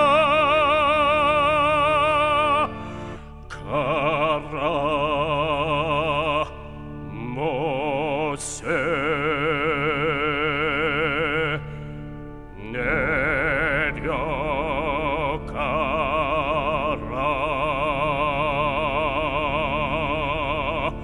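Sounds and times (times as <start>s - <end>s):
man singing long held notes: 0.0s - 11.8s, 12.5s - 21.0s.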